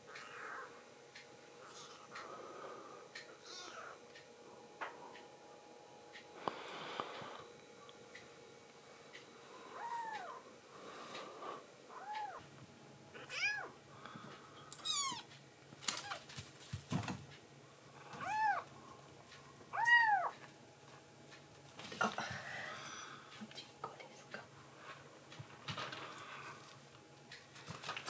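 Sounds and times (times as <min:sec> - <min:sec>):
kitten mewing: 0:13.2 - 0:13.7, 0:18.2 - 0:18.6, 0:19.8 - 0:20.3.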